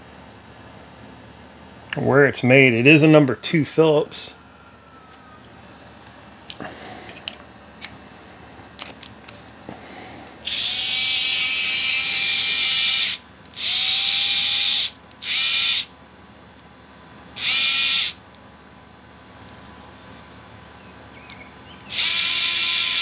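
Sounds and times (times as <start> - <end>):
electric screwdriver motor whirring: 10.5 - 15.8, 17.4 - 18.1, 21.9 - 23.0.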